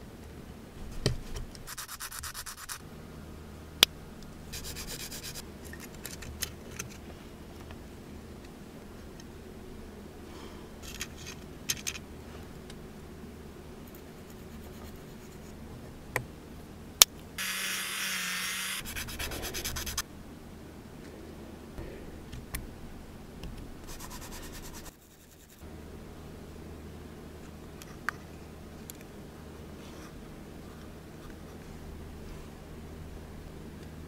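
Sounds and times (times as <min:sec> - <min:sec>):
file rasping plastic: 0:18.6 - 0:20.0.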